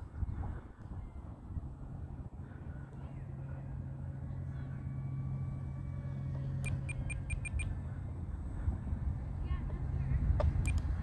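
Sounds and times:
wind noise on microphone: 0.0 - 3.9
steady low drone: 0.0 - 11.0
short high beeps: 6.6 - 7.7.

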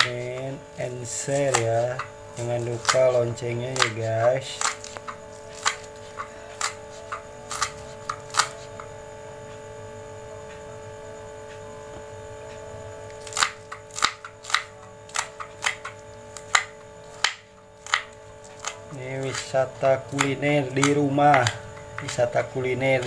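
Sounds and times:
steady hum: 0.0 - 23.0
knife chopping on wooden board: 1.4 - 2.1, 20.1 - 22.5.

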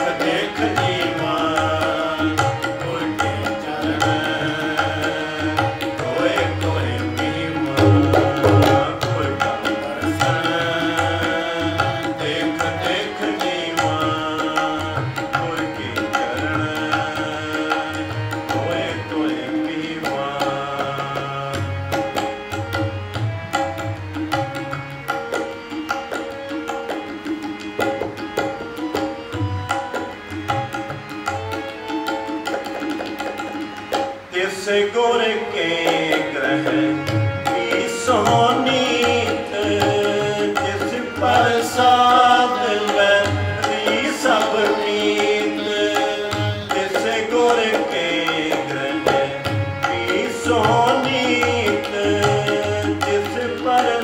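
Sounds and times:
tabla strokes: 0.0 - 34.2
harmonium melody: 0.0 - 54.0.

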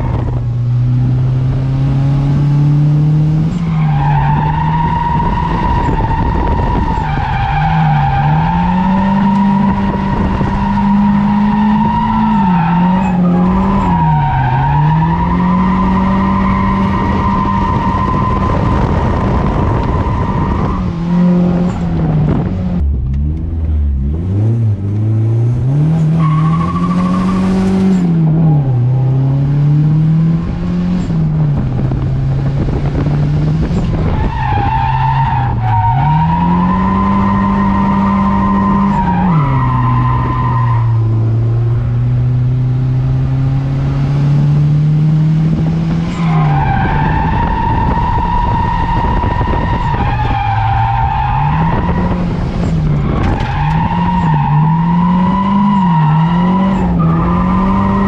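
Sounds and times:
car engine revving: 0.0 - 58.0
tires squealing: 3.4 - 22.5, 25.6 - 29.4, 32.6 - 41.4, 45.5 - 58.0.

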